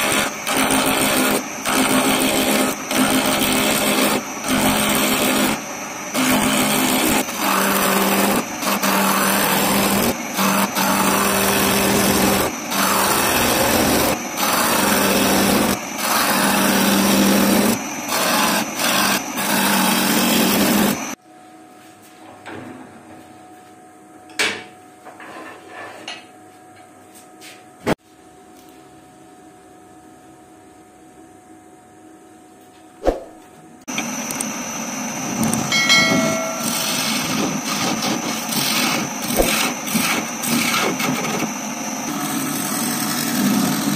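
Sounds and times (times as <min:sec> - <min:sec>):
lathe gouge cutting wood: 0:00.0 - 0:21.2, 0:34.0 - 0:43.9.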